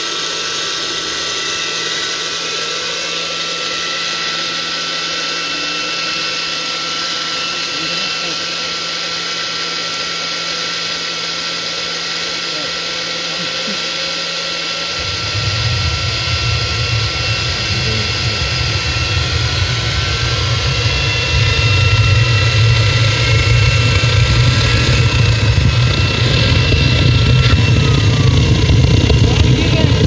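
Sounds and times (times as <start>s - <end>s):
electric blower: 0.0s - 30.0s
turbine whining: 0.0s - 30.0s
deep rumble: 14.3s - 30.0s.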